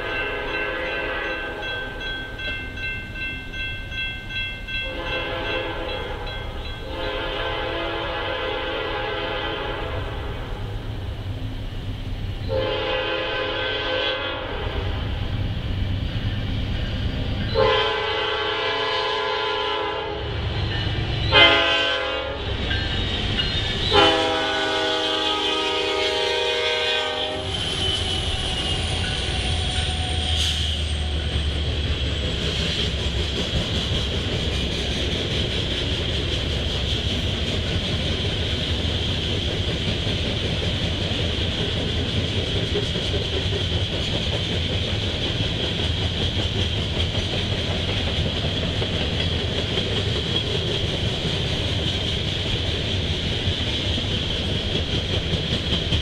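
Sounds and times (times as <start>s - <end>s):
low rumble of passing train: 0.0s - 56.0s
locomotive air horn blasts: 0.5s - 1.7s, 4.9s - 10.6s, 12.5s - 15.0s, 17.5s - 20.3s, 21.3s - 22.4s, 23.9s - 28.1s
train wheel clatter: 20.3s - 56.0s.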